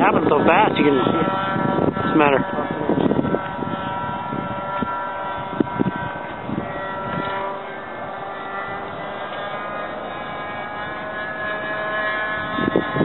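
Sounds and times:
distant model airplane engine droning: 0.0 - 13.0.

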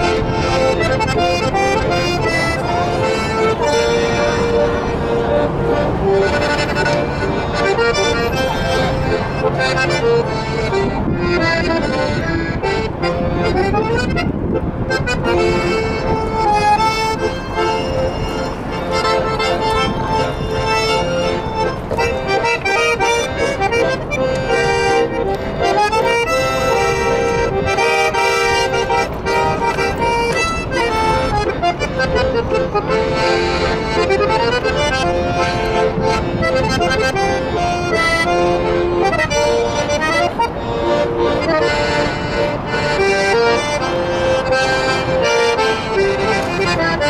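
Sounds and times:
accordions playing a tune: 0.0 - 47.0.

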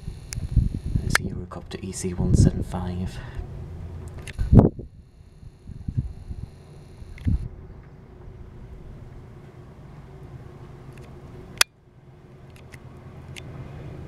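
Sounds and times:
distant helicopter rumble: 0.0 - 14.0
faint steady hum: 0.0 - 14.0
sharp click: 7.1 - 7.4.

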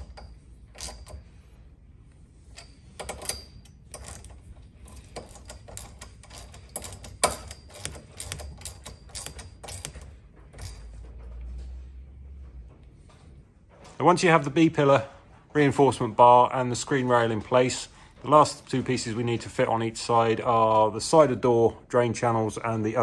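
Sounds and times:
hand ratchet clicking: 2.5 - 10.9.

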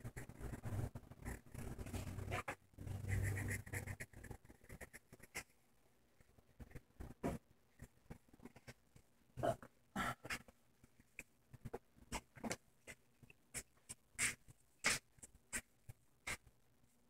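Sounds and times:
pencil scratching on paper: 0.0 - 5.6, 11.7 - 16.5.

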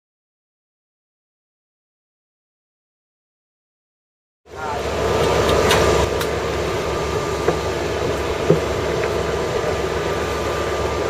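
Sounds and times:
low machinery drone: 4.5 - 11.0.

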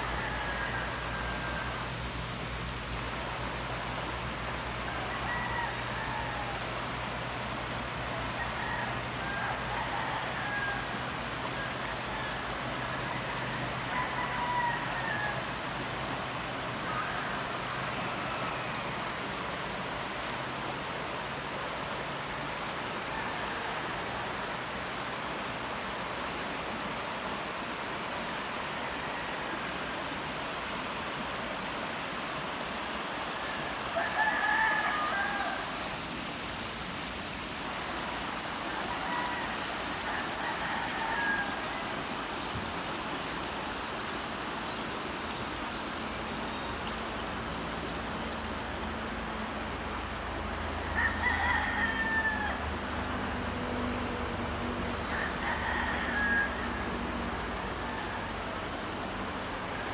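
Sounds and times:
rooster crowing: 0.0 - 2.0, 4.8 - 6.8, 8.3 - 15.6, 33.3 - 35.8, 38.0 - 42.3, 50.7 - 58.7
river rushing over rapids: 0.0 - 59.9.

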